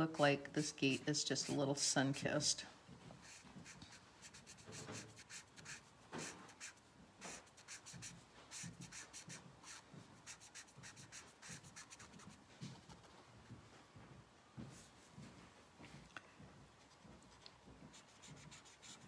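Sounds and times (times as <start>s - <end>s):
felt pen scratching on cardstock: 3.2s - 12.4s.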